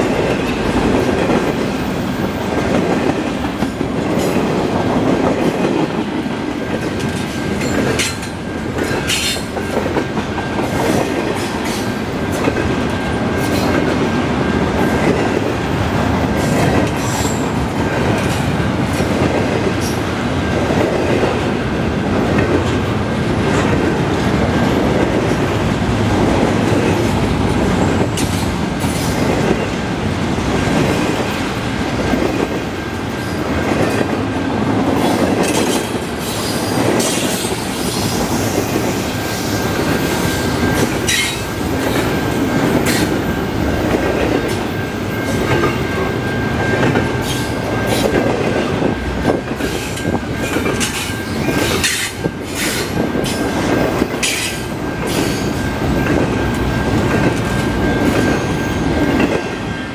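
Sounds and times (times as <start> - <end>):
train wheels rumbling on rail: 0.0 - 59.9
clacks over rail joints: 2.5 - 14.2, 40.6 - 59.6.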